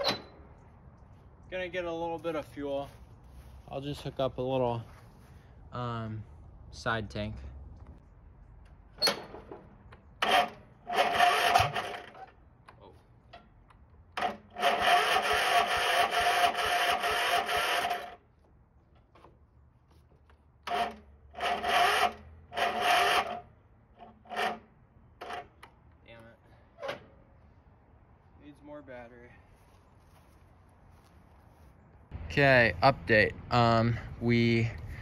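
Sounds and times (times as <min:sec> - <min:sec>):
mower engine cranking by electric starter: 0:09.0 - 0:12.4, 0:14.1 - 0:18.2, 0:20.6 - 0:25.8.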